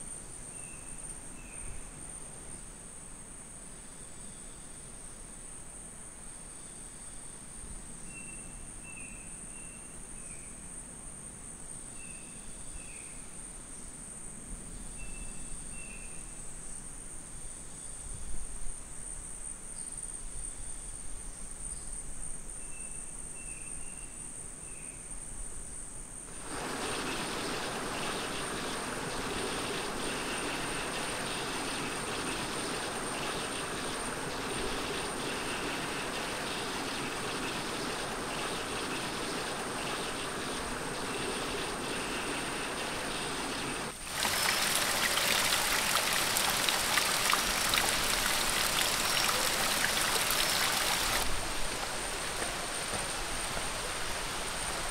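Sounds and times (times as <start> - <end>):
quiet rushing noise: 26.3 - 54.9
high insect trill: 26.4 - 51.2
waterfall splashing: 26.4 - 54.9.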